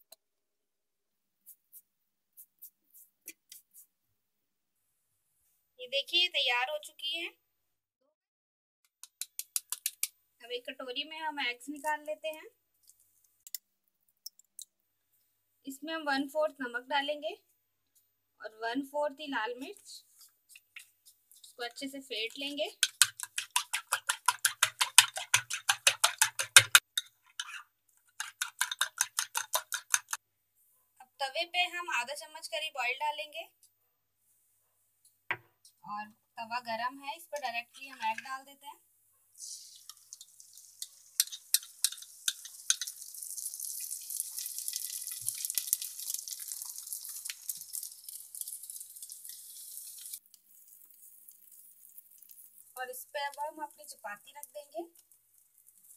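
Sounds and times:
fork beating eggs in glass bowl: 22.2s - 30.2s, 39.8s - 43.0s
egg sizzling in hot oil: 22.3s - 30.2s, 39.4s - 55.9s.

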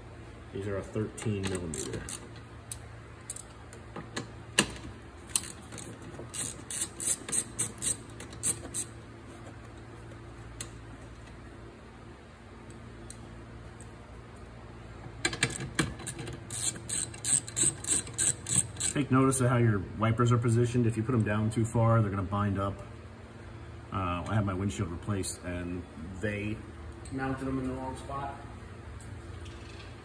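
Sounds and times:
steady low hum: 0.0s - 30.0s
ratchet wrench clicking: 1.2s - 3.5s, 5.3s - 8.9s, 15.3s - 19.0s.

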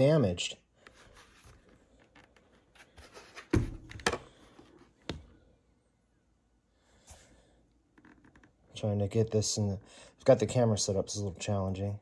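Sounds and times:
helmet handling rustles and clicks: 0.8s - 5.3s.

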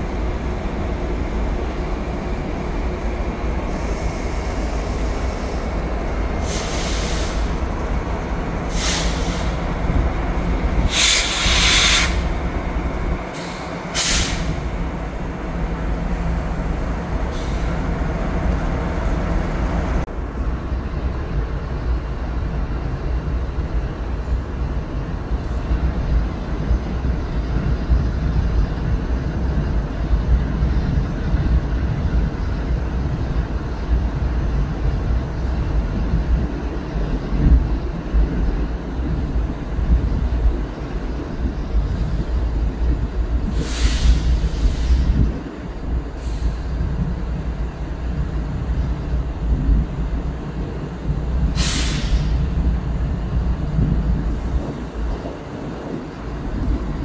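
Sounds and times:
standing train rumble: 0.0s - 57.0s
train air brakes hissing: 3.7s - 7.6s, 8.6s - 9.7s, 10.8s - 12.3s, 13.3s - 14.7s, 17.3s - 17.8s, 43.4s - 45.2s, 46.1s - 46.9s, 51.5s - 52.5s.

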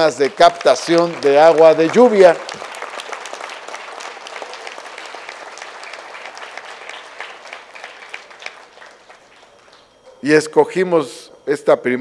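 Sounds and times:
audience applauding: 0.0s - 10.1s.

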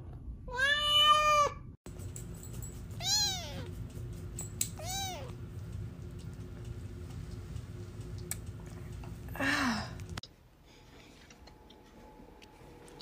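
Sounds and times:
cat meowing: 0.5s - 1.6s, 3.0s - 3.6s.

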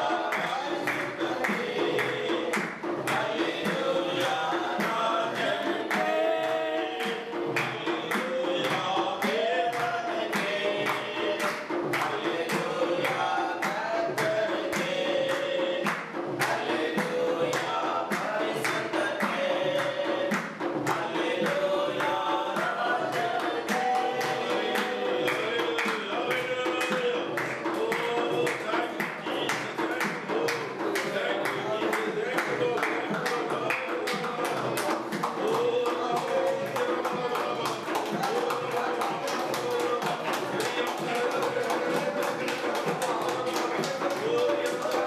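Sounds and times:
frame drum beat: 0.0s - 45.0s
group singing worship song: 0.0s - 45.0s
hand clapping: 0.0s - 45.0s.

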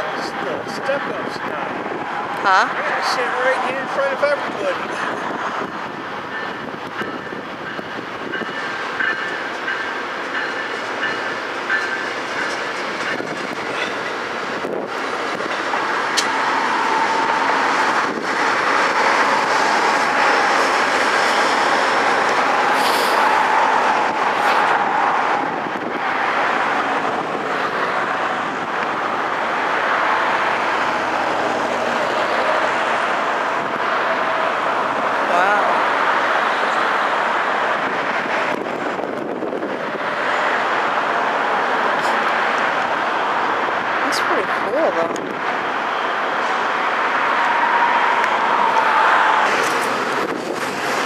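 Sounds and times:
train wheels clicking over rail joints: 6.3s - 23.7s.

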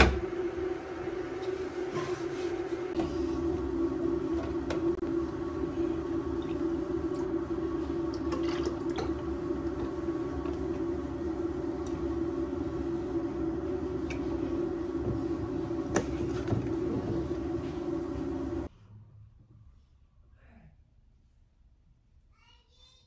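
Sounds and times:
steady hum: 0.0s - 18.7s
liquid pouring into a mug: 6.0s - 10.9s.

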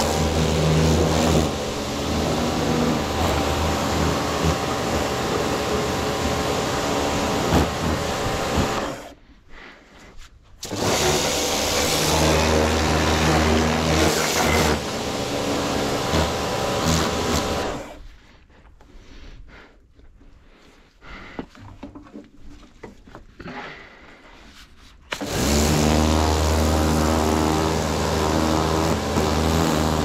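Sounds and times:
pressure washer motor hum: 0.0s - 9.1s, 10.6s - 18.0s, 25.1s - 30.0s.

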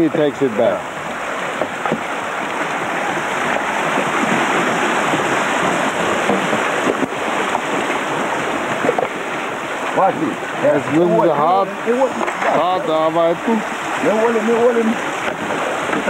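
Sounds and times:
river water rushing over stones: 0.0s - 16.0s.

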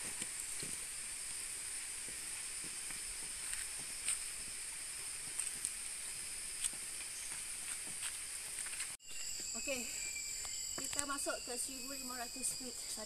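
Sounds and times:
soft footsteps: 0.0s - 9.5s
insects droning high-pitched: 0.0s - 13.0s.

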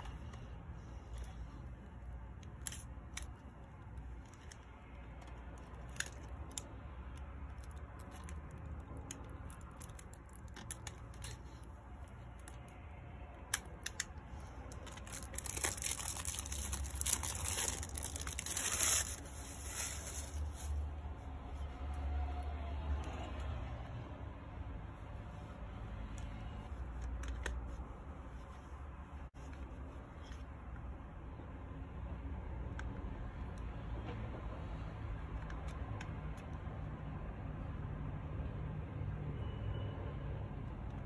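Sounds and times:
small clicks and scrapes: 0.0s - 20.8s
plastic crinkling and tearing: 2.4s - 12.8s, 13.5s - 20.9s
knife slitting plastic wrap: 14.9s - 20.8s.

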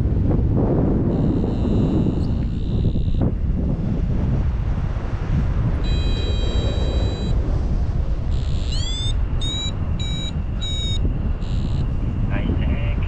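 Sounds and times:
wind noise on microphone: 0.0s - 13.0s
variometer beeping: 1.1s - 3.4s, 5.8s - 7.4s, 8.3s - 12.0s.

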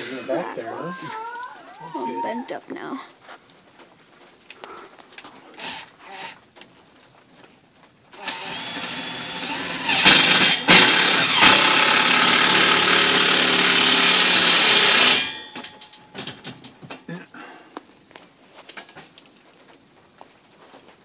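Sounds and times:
cordless driver driving screw: 8.2s - 15.3s.

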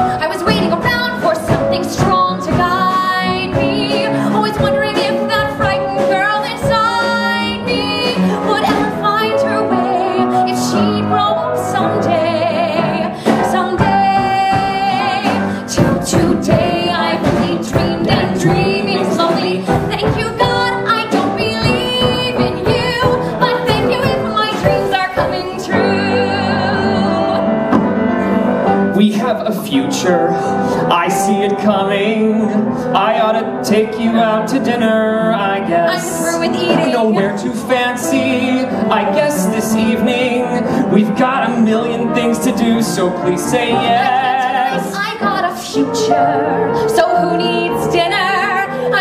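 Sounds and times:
woman singing with vibrato: 0.0s - 27.7s, 35.4s - 40.2s, 43.6s - 49.0s
instrumental accompaniment: 0.0s - 49.0s.

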